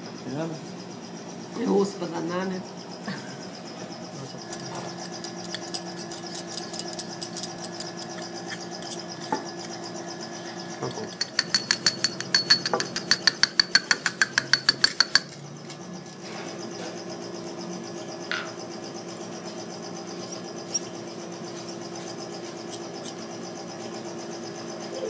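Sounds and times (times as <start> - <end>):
steady low hum: 0.0 - 25.0
bone mill clicking: 10.8 - 15.3
metal instrument tapping cup: 11.0 - 15.3.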